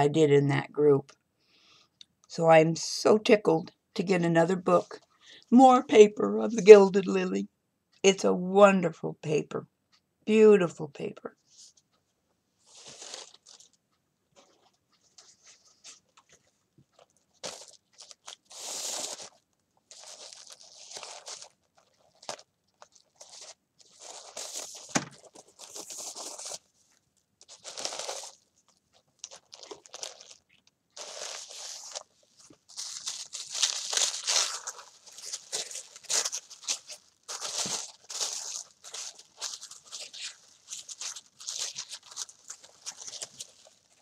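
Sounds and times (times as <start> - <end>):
paper wrapping rustling: 12.6 - 13.8, 14.4 - 44.0.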